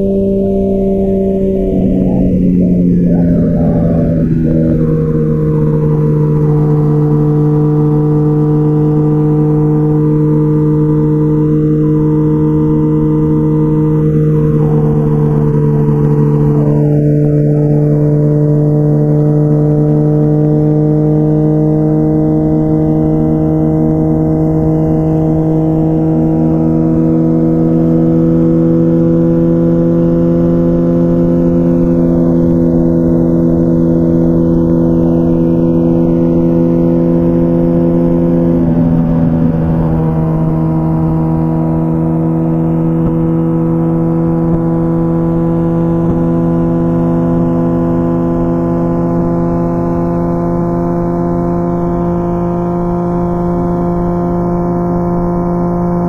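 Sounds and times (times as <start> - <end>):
motorcycle engine cruising: 0.0 - 56.0.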